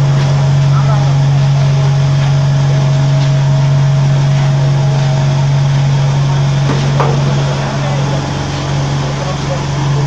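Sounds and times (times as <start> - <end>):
vibrator table humming: 4.1 - 10.0.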